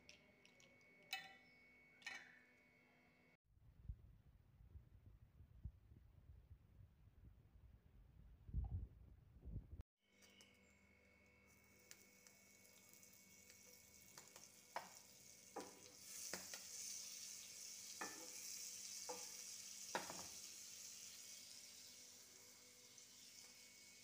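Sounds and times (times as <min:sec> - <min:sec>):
butter sizzling in a frying pan: 0:11.4 - 0:24.0.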